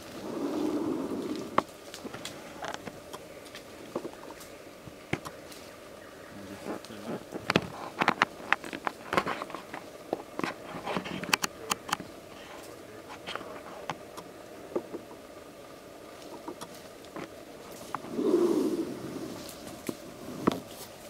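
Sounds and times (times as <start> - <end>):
bird scratching through dry leaves: 0.0 - 4.6, 16.2 - 21.0.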